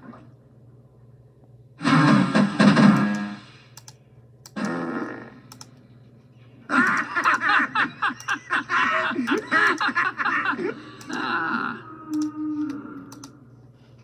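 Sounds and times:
cartoon sound from tv: 1.8 - 3.6, 6.6 - 13.5.

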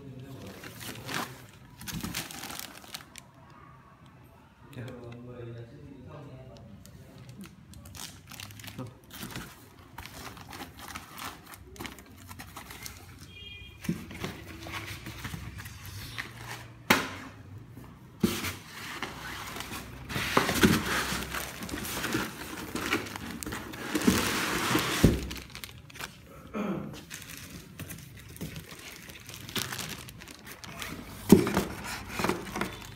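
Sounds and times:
plastic bag crinkling: 0.2 - 3.4, 6.8 - 13.5, 19.1 - 26.3, 27.0 - 32.9.

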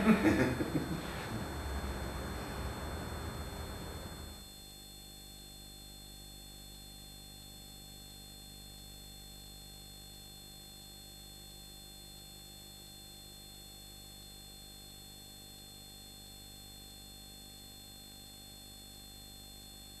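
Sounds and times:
faint electrical hum and hiss: 0.0 - 5.8.

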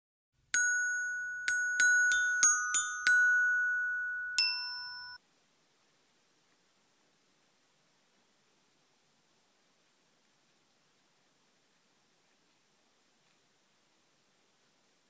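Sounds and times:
bell-like chiming jingle: 0.6 - 5.2.

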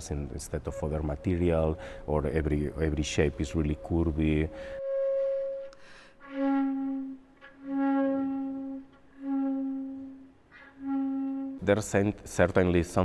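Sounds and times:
long slow held music notes: 0.0 - 11.7.

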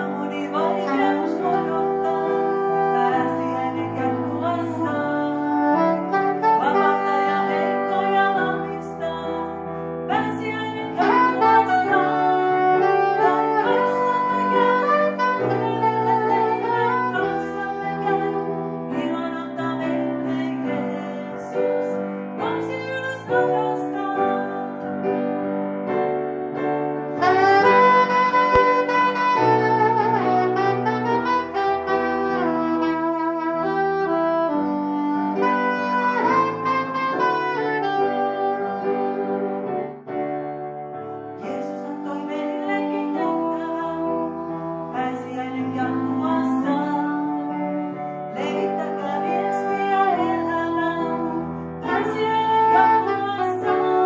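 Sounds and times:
soprano saxophone melody: 0.0 - 25.0, 27.0 - 54.0.

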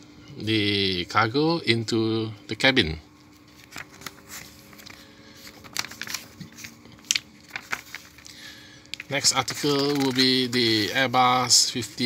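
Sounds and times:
faint steady hum: 0.0 - 12.0
magazine pages rustling: 3.2 - 12.0.

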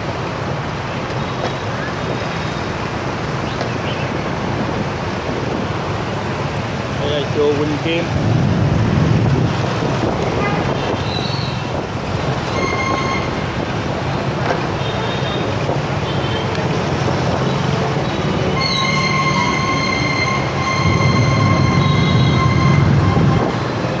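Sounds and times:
road noise: 0.0 - 24.0
high steady squealing tone: 12.5 - 13.5, 18.4 - 23.7.

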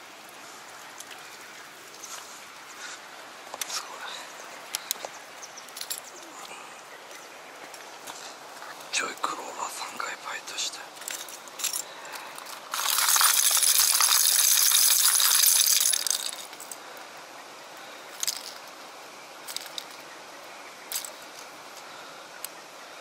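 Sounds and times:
lures rattling in plastic box: 12.4 - 16.7, 18.2 - 18.6.

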